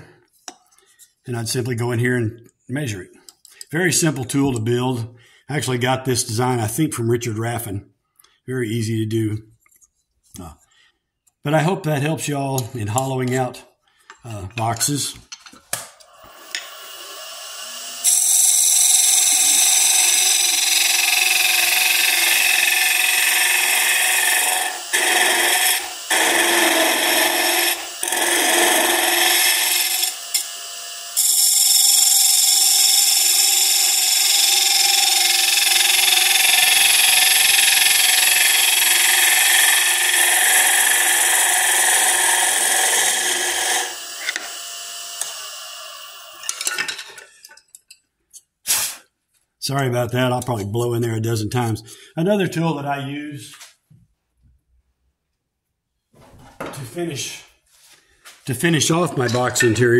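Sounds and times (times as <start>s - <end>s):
lathe tool scraping wood: 16.0s - 46.6s.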